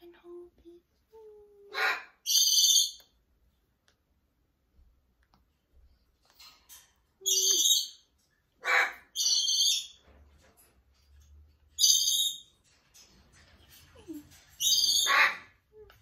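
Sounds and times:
macaws squawking: 0:14.6 - 0:15.5.

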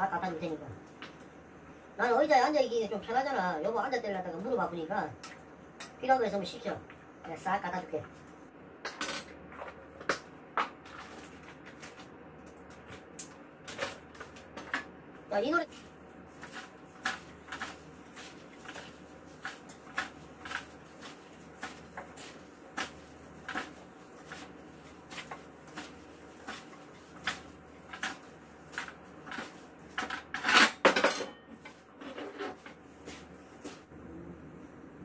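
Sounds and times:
knocks and scrapes of pan and food: 0:15.7 - 0:33.8.

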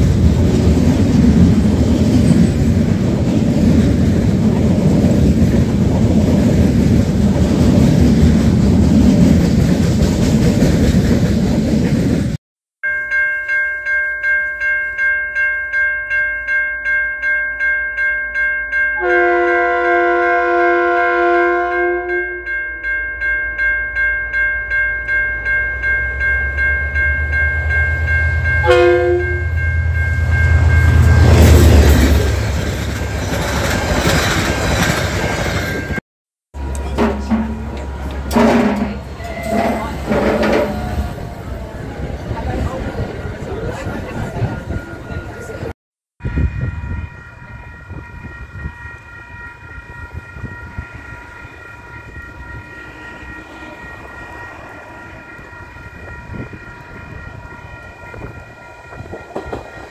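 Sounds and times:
freight train clattering past: 0:00.0 - 0:12.4, 0:25.0 - 0:36.0, 0:36.6 - 0:45.7, 0:46.3 - 0:59.9
level crossing bell ringing: 0:12.8 - 0:20.6, 0:21.4 - 0:32.4
train horn blast: 0:19.0 - 0:22.5, 0:28.6 - 0:29.5.

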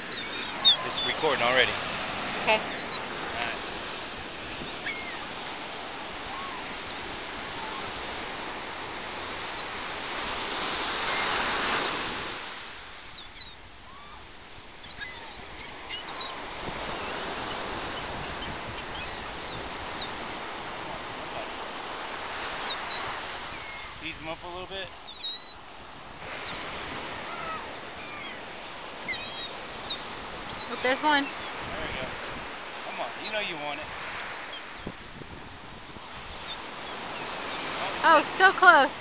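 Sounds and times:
seagull calls: 0:00.0 - 0:01.8, 0:02.4 - 0:03.7, 0:04.4 - 0:10.0, 0:13.1 - 0:14.2, 0:14.8 - 0:20.5, 0:22.5 - 0:24.2, 0:25.0 - 0:25.6, 0:26.4 - 0:28.4, 0:29.0 - 0:31.6, 0:32.9 - 0:34.8, 0:36.3 - 0:38.8
surf: 0:00.0 - 0:39.0
wind: 0:00.0 - 0:39.0.

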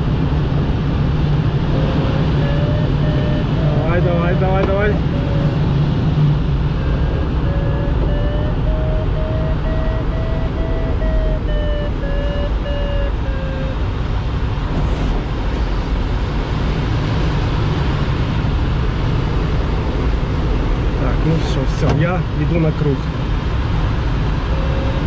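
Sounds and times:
airflow rushing in cockpit: 0:00.0 - 0:25.0
variometer beeping: 0:01.7 - 0:14.0, 0:24.5 - 0:25.0.

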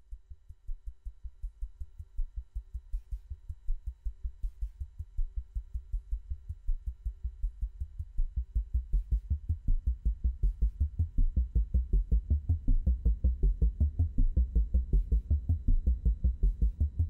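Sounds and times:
pulsing synthesizer bass sequence: 0:09.1 - 0:17.0.

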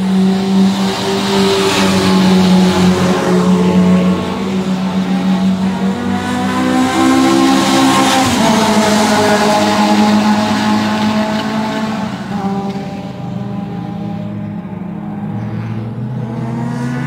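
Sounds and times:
race car engines: 0:00.0 - 0:17.0.

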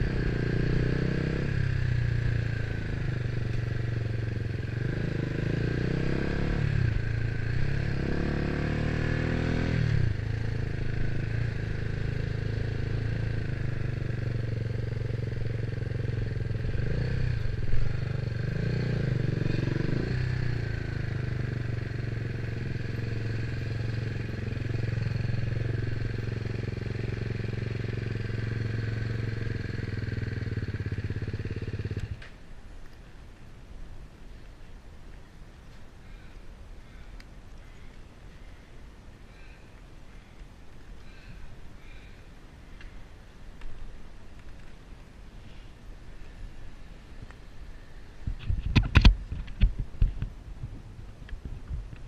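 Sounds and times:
motorcycle engine running: 0:00.0 - 0:32.2.

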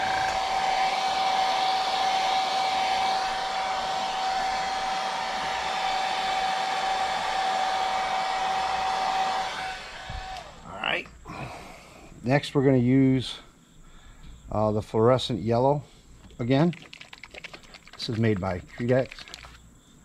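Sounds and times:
hair dryer running: 0:00.0 - 0:10.7.

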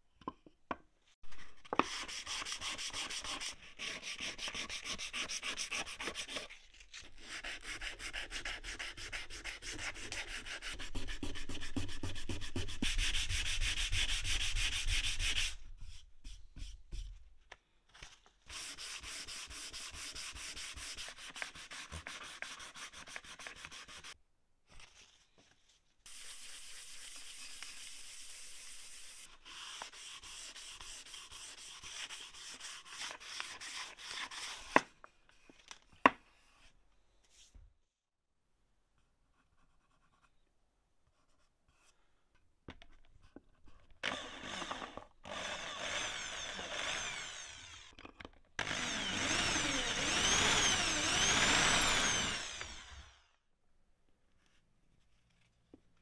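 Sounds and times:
sandpaper rubbing on wood: 0:01.8 - 0:06.5, 0:07.2 - 0:15.6, 0:18.5 - 0:24.2, 0:26.1 - 0:34.7.

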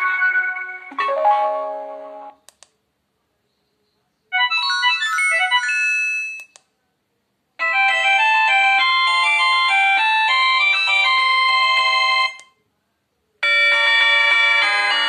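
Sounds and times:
short clicks: 0:02.5 - 0:02.8.

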